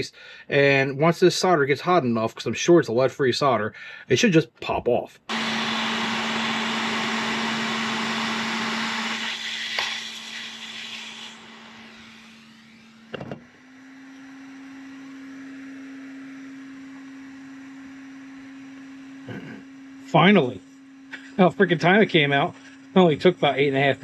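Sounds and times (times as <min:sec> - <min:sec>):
hot air station hissing: 0:05.3 - 0:13.4.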